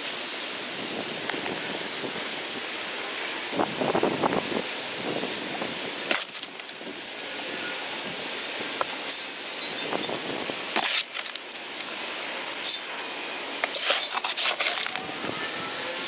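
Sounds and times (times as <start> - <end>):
pebbles clattering off metal shovel: 13.7 - 15.0.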